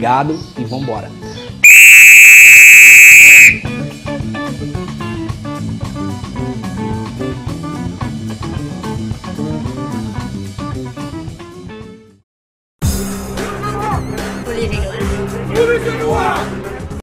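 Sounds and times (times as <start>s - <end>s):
shrill whistle blast: 1.6s - 3.8s
instrumental music with guitar and drums: 3.6s - 12.1s.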